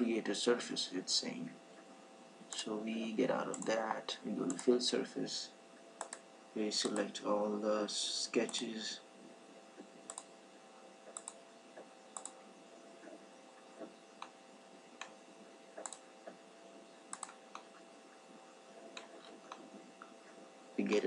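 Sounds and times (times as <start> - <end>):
low hum: 0.0 - 21.0
computer mouse clicks: 3.5 - 3.8, 6.0 - 7.1, 9.8 - 10.3, 11.0 - 12.4, 15.0 - 15.2, 15.8 - 16.4, 17.1 - 17.8.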